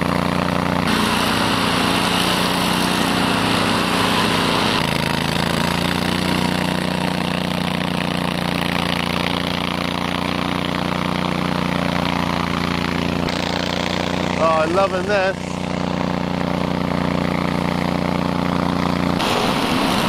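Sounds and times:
mower engine at high revs: 0:00.0 - 0:20.0
blade cutting hiss: 0:00.9 - 0:04.9, 0:19.2 - 0:20.0.

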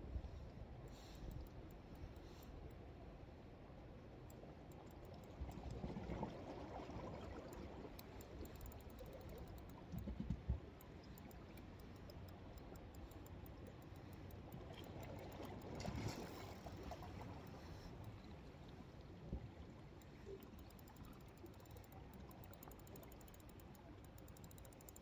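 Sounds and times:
wind and water: 0:00.0 - 0:25.0
fishing reel ticking: 0:07.9 - 0:10.0, 0:10.8 - 0:15.8, 0:20.0 - 0:25.0.

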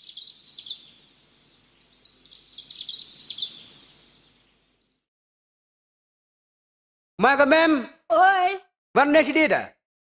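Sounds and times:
small birds chirping: 0:00.0 - 0:05.1.

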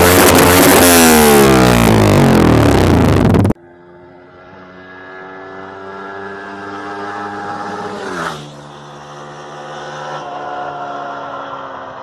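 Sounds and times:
motorcycle passing at speed: 0:00.0 - 0:12.0.

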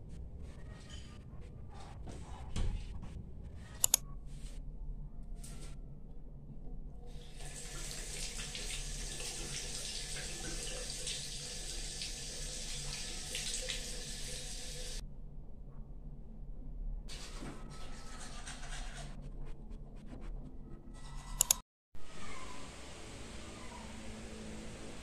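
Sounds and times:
tap water running into sink: 0:07.4 - 0:15.0.

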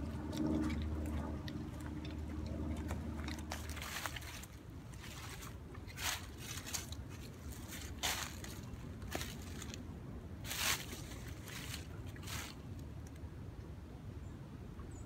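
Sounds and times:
footsteps on dry leaves: 0:02.7 - 0:12.8.

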